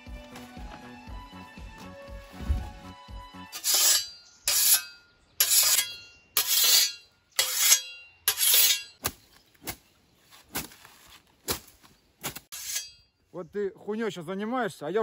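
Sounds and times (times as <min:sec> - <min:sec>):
scythe swishing through grass: 0:03.5 - 0:13.0.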